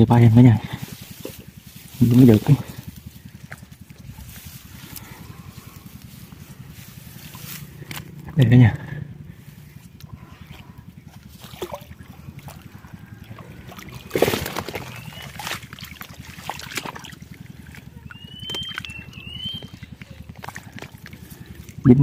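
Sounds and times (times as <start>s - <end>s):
steady low throb: 0.0s - 22.0s
water sloshing and trickling: 0.7s - 8.4s, 9.4s - 22.0s
water splash: 11.3s - 12.6s, 13.5s - 17.8s.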